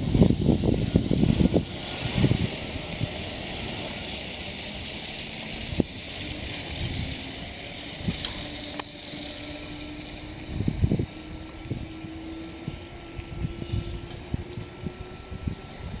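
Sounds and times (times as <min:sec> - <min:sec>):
steady hiss: 0:00.0 - 0:10.7
electric train motor hum: 0:00.0 - 0:16.0
high-pitched whine: 0:00.0 - 0:16.0.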